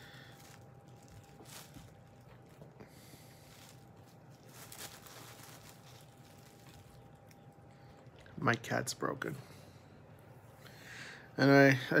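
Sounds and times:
soft rustles: 0.0s - 7.4s.

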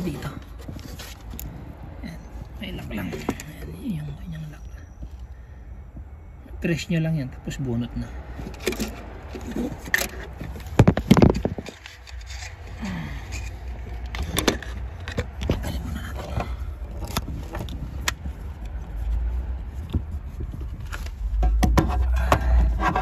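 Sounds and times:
hands handling wiring connector: 8.4s - 23.0s.

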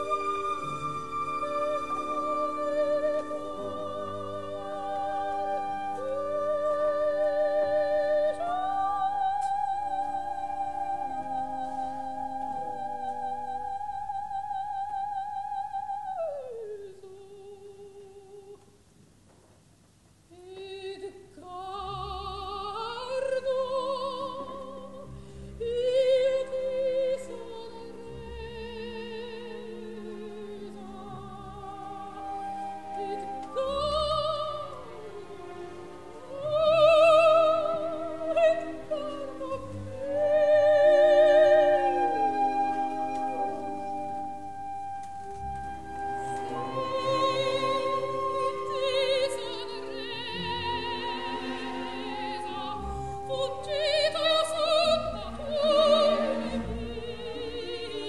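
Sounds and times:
orchestra playing: 0.0s - 7.7s, 25.2s - 58.0s
operatic soprano singing: 0.0s - 18.6s, 20.3s - 58.0s.

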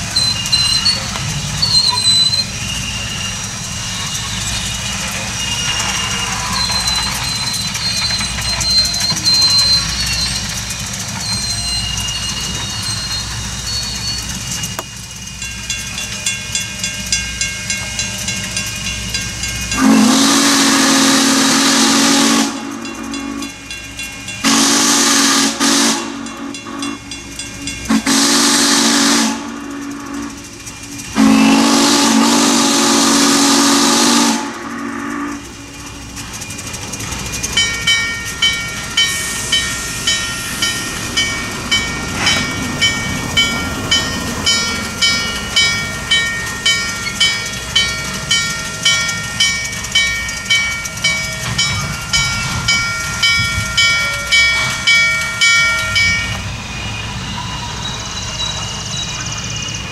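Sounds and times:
steam whistle blasts: 19.7s - 23.6s, 24.4s - 27.0s, 27.9s - 30.5s, 31.1s - 35.5s
regular bell ringing: 36.2s - 56.5s.

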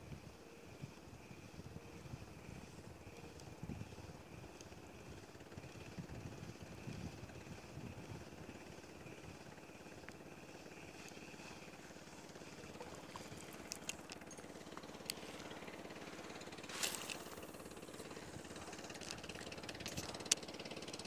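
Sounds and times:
small boat engine chugging: 0.2s - 21.0s
sharp clicks: 12.4s - 15.8s.

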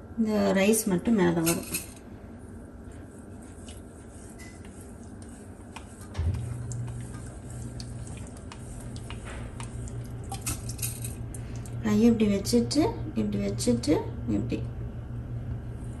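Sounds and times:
steady low hum: 0.0s - 16.0s
water sloshing in steel bowl: 3.5s - 11.8s.

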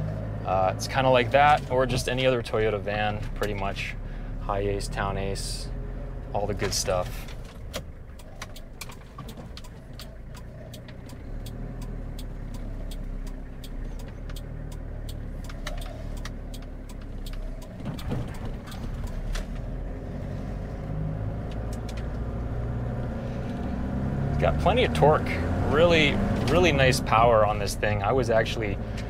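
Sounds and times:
truck engine pulling away: 0.0s - 29.0s
turn signal relay clicking: 6.5s - 19.8s, 21.4s - 22.4s.

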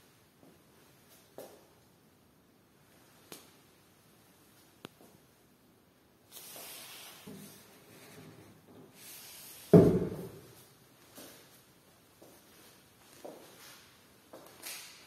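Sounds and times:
faint rustling and scraping: 6.3s - 14.7s
loud thump: 9.7s - 10.4s.

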